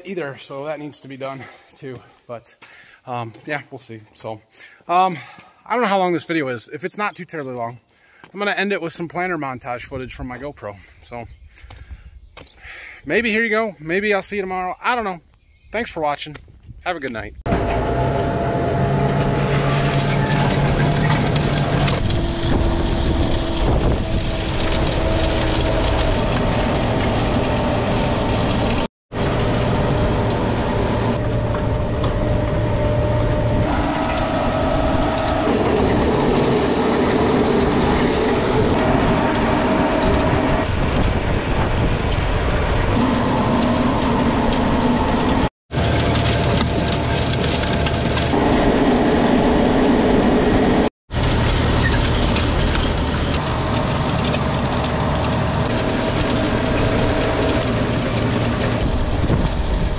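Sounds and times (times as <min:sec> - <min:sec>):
planter machine rattling and clattering: 0:18.8 - 0:32.6, 0:43.0 - 0:49.1, 0:51.1 - 0:59.9.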